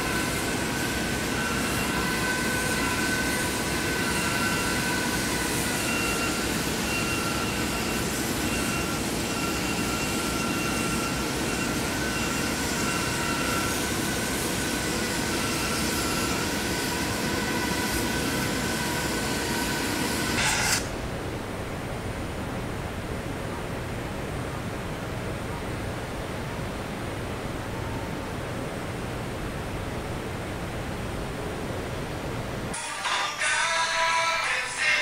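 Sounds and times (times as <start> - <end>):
industrial machinery roar and hiss: 0.0 - 21.2, 32.7 - 35.0.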